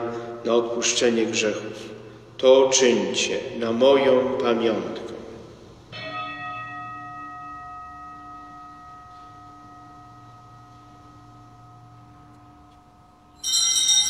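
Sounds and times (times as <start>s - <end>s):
altar bell ringing: 5.9s - 14.0s.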